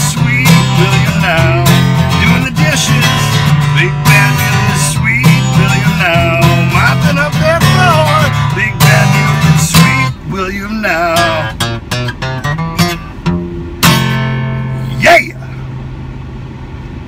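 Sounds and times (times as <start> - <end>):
man singing: 0.0 - 11.6, 14.8 - 15.6
acoustic guitar strummed: 0.0 - 15.8.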